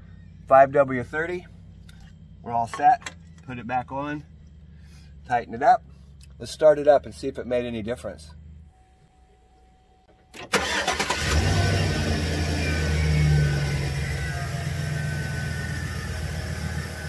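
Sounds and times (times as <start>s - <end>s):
engine cranking and starting: 10.4s - 14.9s
engine fast idle: 10.5s - 17.0s.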